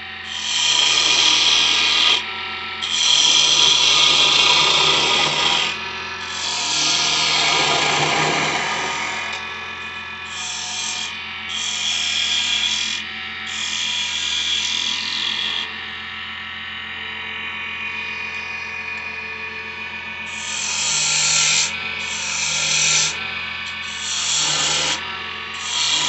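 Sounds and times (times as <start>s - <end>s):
wood lathe motor hum: 0.0s - 26.0s
turning tool cutting wood: 0.3s - 9.4s, 10.2s - 15.7s, 20.3s - 26.0s.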